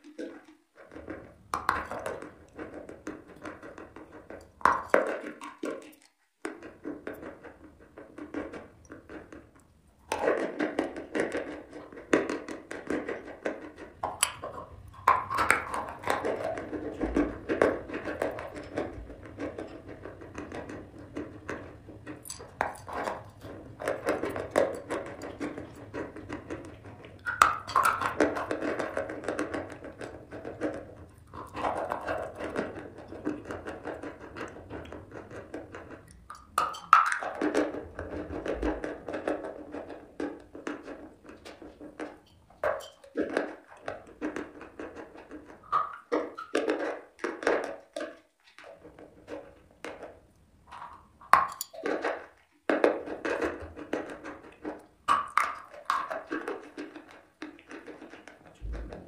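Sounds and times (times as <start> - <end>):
chalk crunching while chewed: 13.6 - 37.5.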